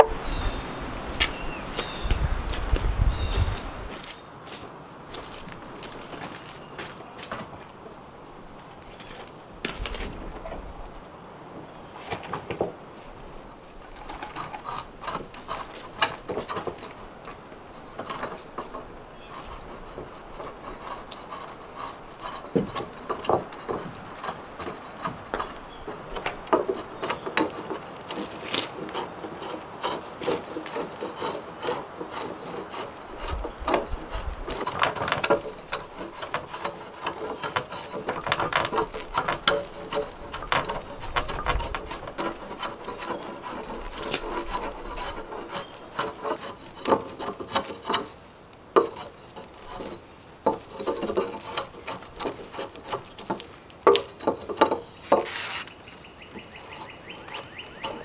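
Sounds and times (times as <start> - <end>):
drawknife scraping bark: 13.8 - 17.0, 17.9 - 48.2, 48.8 - 55.8, 56.4 - 58.0
dull thumps: 33.2 - 48.1.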